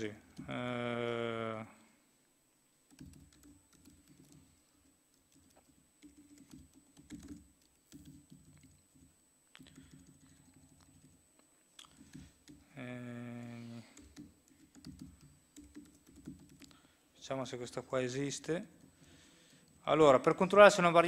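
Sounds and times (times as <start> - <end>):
typing on laptop keyboard: 0.2 - 0.6, 2.9 - 16.9.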